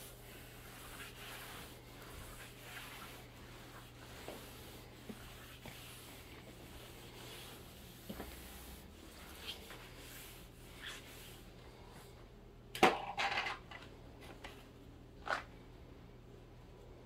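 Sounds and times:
mop swishing on floor: 0:00.0 - 0:12.1.

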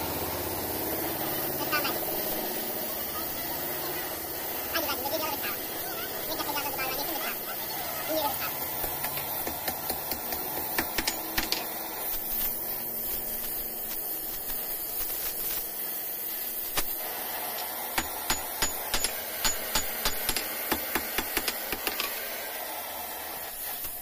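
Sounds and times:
gas torch hissing: 0:00.0 - 0:24.0
hammer ringing on hot metal: 0:18.0 - 0:21.9.

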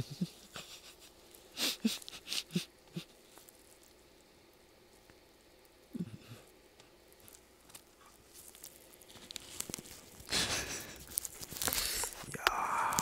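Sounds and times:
plastic crinkling rustle: 0:00.3 - 0:05.8, 0:06.4 - 0:13.0.

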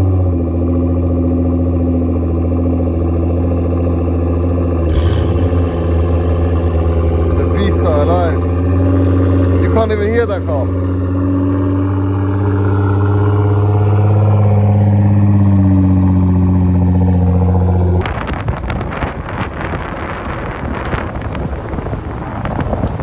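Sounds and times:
car engines idling: 0:00.0 - 0:23.0
clatter from a car driving: 0:16.8 - 0:23.0
rushing buffeting wind noise: 0:17.6 - 0:23.0.

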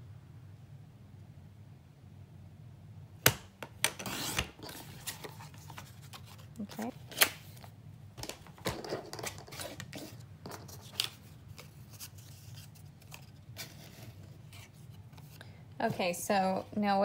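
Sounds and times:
paper rustling: 0:04.0 - 0:15.4.

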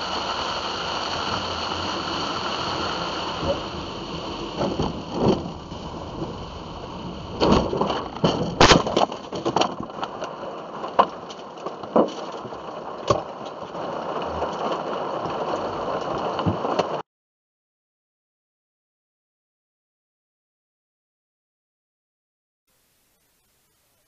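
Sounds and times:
steady rushing noise: 0:00.0 - 0:08.6
car crashing into trees: 0:07.3 - 0:09.8.

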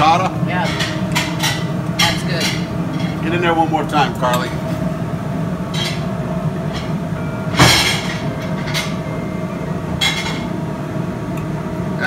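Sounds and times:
low hum of commercial kitchen: 0:00.0 - 0:12.0.

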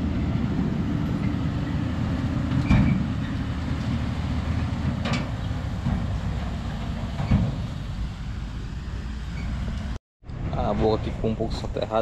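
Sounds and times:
diesel engine running: 0:00.0 - 0:10.0.

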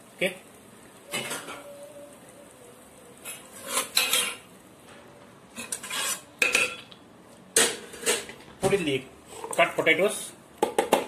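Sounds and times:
metal spatula scraping clay pot: 0:03.2 - 0:04.5, 0:05.5 - 0:06.8.

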